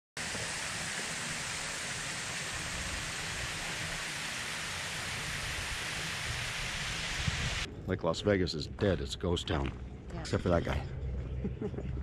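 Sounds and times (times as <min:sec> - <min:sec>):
fountain water hissing: 0:00.2 - 0:07.7.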